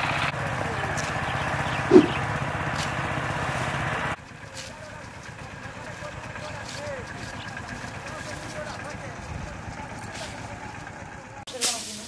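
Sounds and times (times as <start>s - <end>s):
engine-like drone: 0.0s - 11.5s
dry stalks rustling: 0.5s - 12.0s
short animal call: 1.9s - 2.2s.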